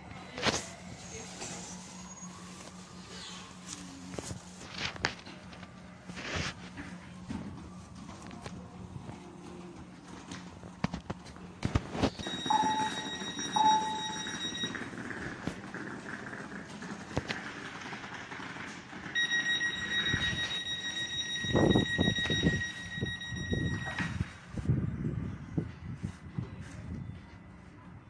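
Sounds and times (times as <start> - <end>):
high electronic warning tone: 12.0 - 15.0, 19.2 - 24.4.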